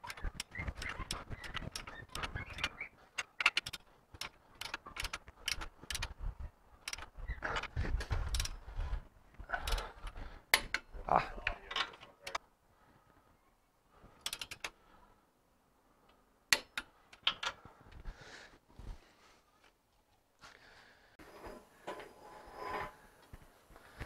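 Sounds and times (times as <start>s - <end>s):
hand ratchet clicking: 0.0s - 6.1s, 9.6s - 10.0s.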